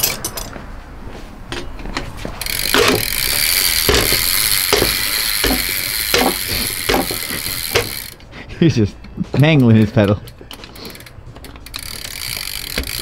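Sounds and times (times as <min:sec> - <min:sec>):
bike hub ratcheting clicks: 0:02.4 - 0:08.2, 0:09.8 - 0:13.0
wrench knocks: 0:02.4 - 0:08.2, 0:11.4 - 0:13.0.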